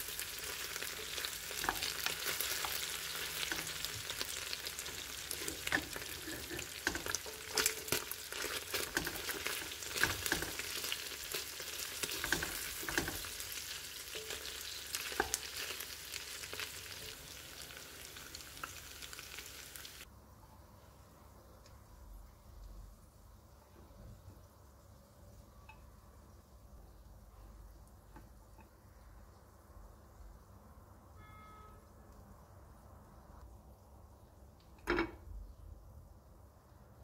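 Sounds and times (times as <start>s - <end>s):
chicken sizzling in oil: 0.0s - 20.1s
wooden spatula scraping pot: 4.8s - 10.8s.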